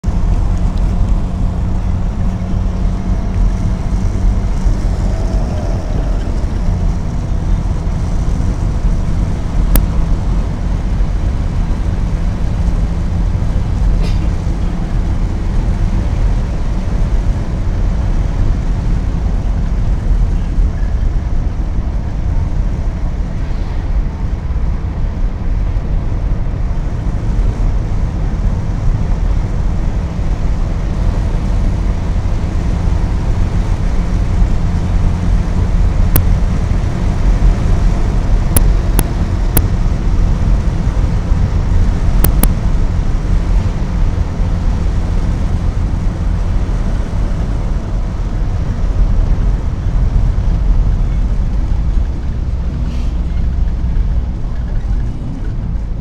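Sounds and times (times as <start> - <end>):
car engine and tyre rumble: 0.0 - 56.0
sharp click: 42.2 - 42.6.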